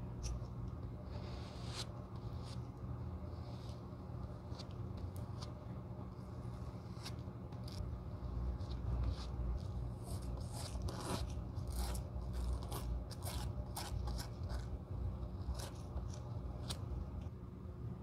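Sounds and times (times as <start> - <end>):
spatula scraping adhesive: 1.1 - 2.6.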